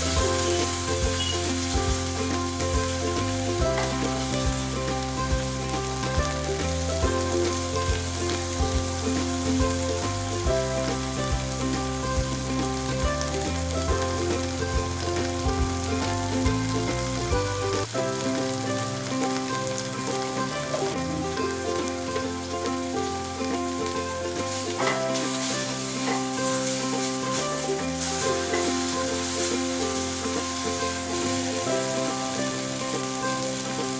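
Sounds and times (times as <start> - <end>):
wooden spatula stirring: 0.0 - 12.5, 20.4 - 32.0
background music with held notes: 0.0 - 33.9
food sizzling in hot oil: 0.0 - 33.9.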